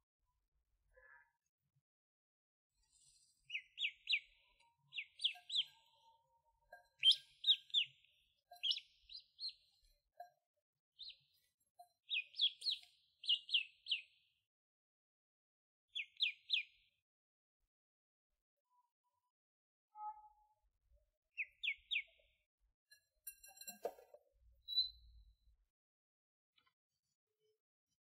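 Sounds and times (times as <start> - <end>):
duckling peeping: 4.9 - 5.8, 6.9 - 7.9, 8.6 - 9.5.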